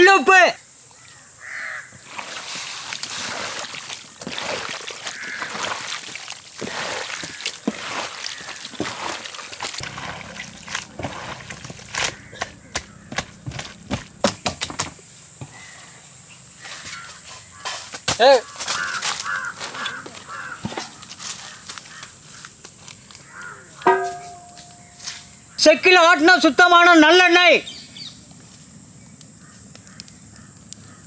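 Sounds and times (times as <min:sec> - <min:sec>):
hands squelching wet food: 0:02.0 - 0:14.1.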